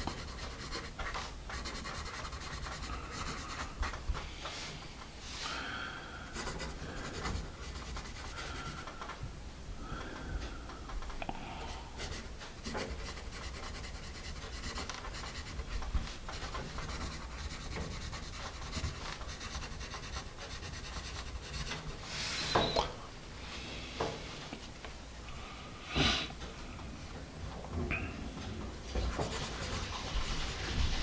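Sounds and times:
pencil scratching on paper: 0:00.0 - 0:04.0, 0:06.4 - 0:08.9, 0:11.9 - 0:21.9, 0:29.0 - 0:31.0.

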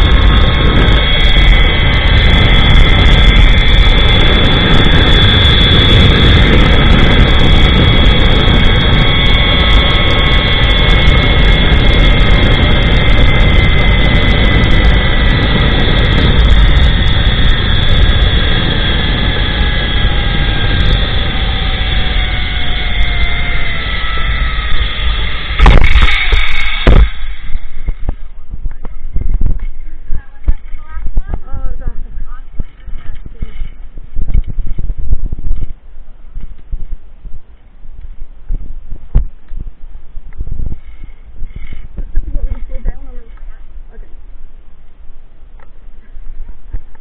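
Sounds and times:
zip-line pulleys whining on cable: 0:00.0 - 0:28.3, 0:32.4 - 0:35.0, 0:40.7 - 0:43.4
wind rush on microphone: 0:00.0 - 0:47.0.

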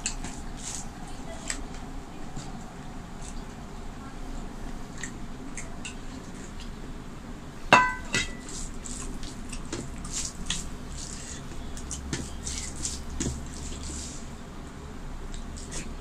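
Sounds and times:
wet squelches of fingers mixing food: 0:00.0 - 0:07.0, 0:07.9 - 0:16.0
steel bowl clinking on dishes: 0:07.8 - 0:08.6.

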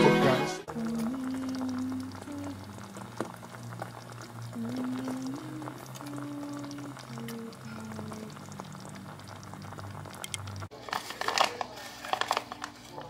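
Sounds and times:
slow background music: 0:00.0 - 0:02.7
sauce bubbling and crackling: 0:00.7 - 0:10.8.

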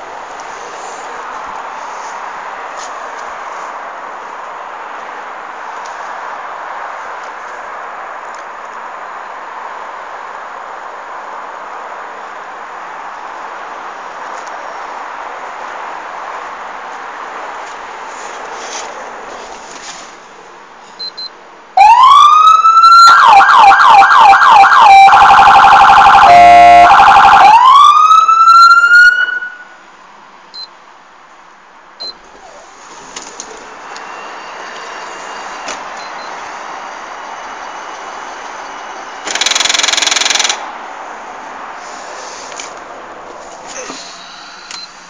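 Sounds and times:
police siren wailing and yelping: 0:21.8 - 0:29.7.

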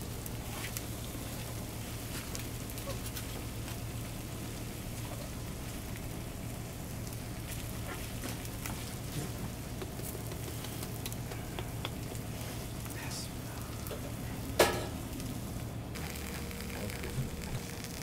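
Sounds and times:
food sizzling on grill: 0:00.0 - 0:18.0
small pops: 0:07.4 - 0:13.0.

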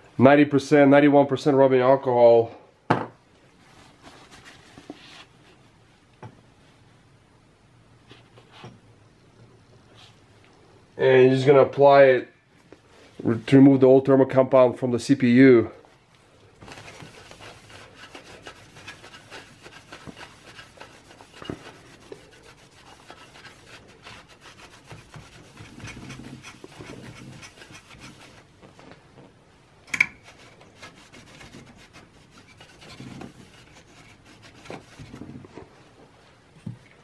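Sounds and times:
soft rustles: 0:03.3 - 0:07.1, 0:08.0 - 0:08.8, 0:09.4 - 0:10.8, 0:15.8 - 0:37.0
paper towel rubbing on metal: 0:16.6 - 0:28.6, 0:30.2 - 0:35.4.

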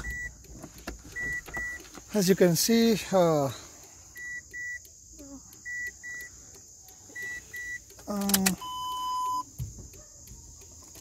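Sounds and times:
dashboard warning chime beeps: 0:00.0 - 0:00.5, 0:01.1 - 0:01.8, 0:04.1 - 0:04.9, 0:05.6 - 0:06.4, 0:07.1 - 0:07.9, 0:08.6 - 0:09.5
longer lower beep: 0:04.2 - 0:04.8, 0:05.6 - 0:06.3, 0:08.6 - 0:09.5.

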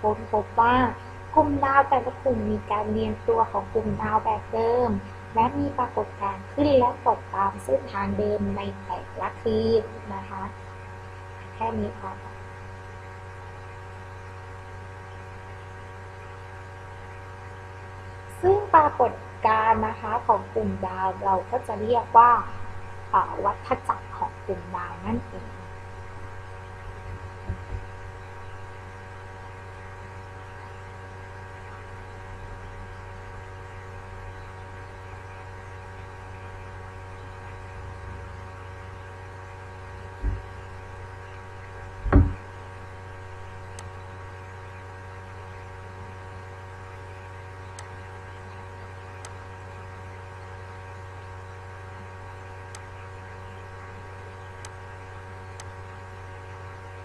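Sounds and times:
electrical mains hum: 0:00.0 - 0:57.0
low thumps: 0:27.0 - 0:28.0, 0:40.2 - 0:40.7, 0:42.0 - 0:42.5.

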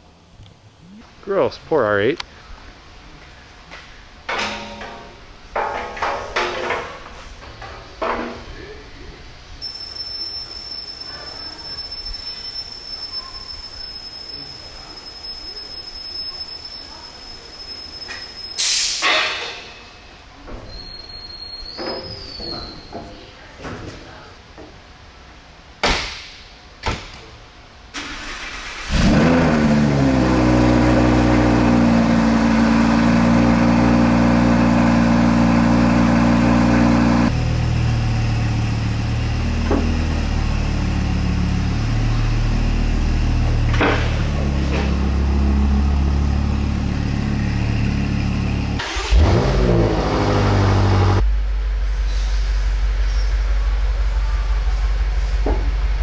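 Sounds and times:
sports car engine starting and idling: 0:27.9 - 0:56.0
engine revving: 0:28.6 - 0:51.3.

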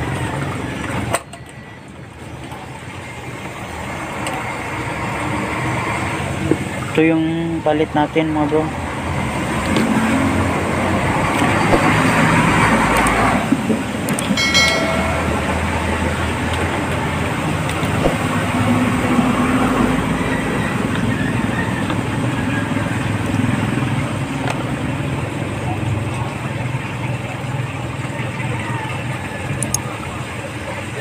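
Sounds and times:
traffic noise: 0:00.0 - 0:31.0
short pitched tone: 0:14.4 - 0:16.5.

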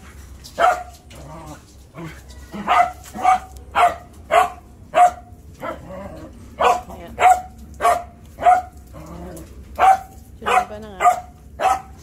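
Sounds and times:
dog barking: 0:00.6 - 0:01.0, 0:02.6 - 0:06.0, 0:06.6 - 0:08.8, 0:09.8 - 0:12.0.

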